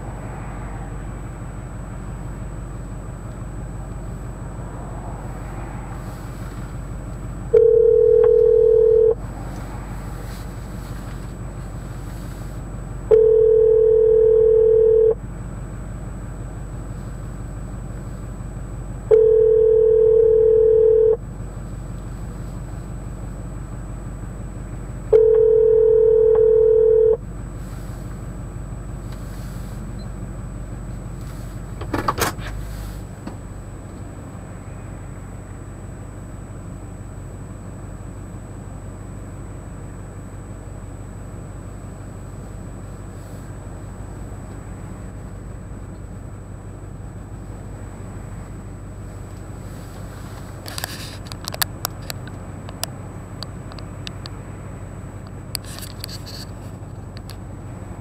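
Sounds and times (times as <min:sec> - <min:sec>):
low car hum: 0:00.0 - 0:58.0
telephone ringback tone: 0:07.5 - 0:09.2, 0:13.1 - 0:15.2, 0:19.1 - 0:21.2, 0:25.1 - 0:27.2.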